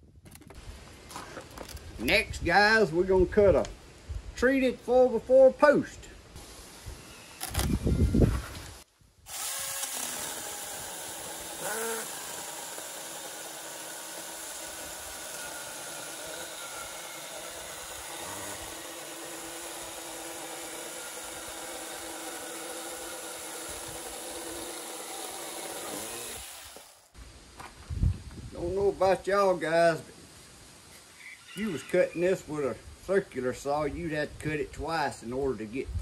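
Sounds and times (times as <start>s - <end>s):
mini chainsaw cutting wood: 7.4s - 27.2s.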